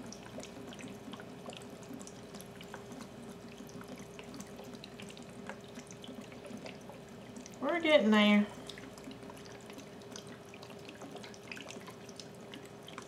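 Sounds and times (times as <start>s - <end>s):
liquid trickling into a jar: 0.0s - 13.0s.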